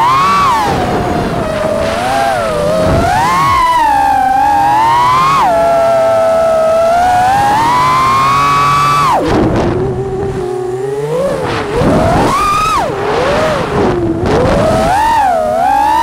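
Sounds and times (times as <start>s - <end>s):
quadcopter motors whining: 0.0s - 16.0s.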